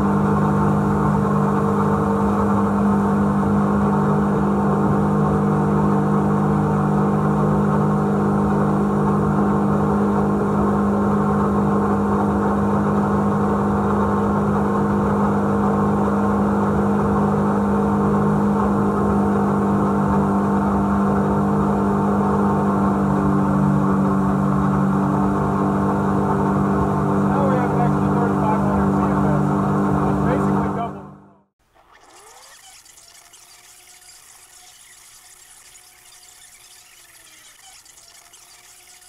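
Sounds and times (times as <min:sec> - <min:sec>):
jet boat engine droning: 0:00.0 - 0:39.0.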